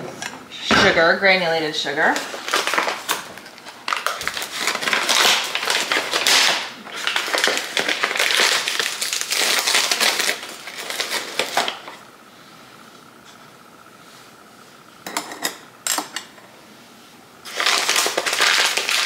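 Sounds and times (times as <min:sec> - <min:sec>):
paper bag crinkling: 0:02.2 - 0:11.9, 0:17.4 - 0:19.0.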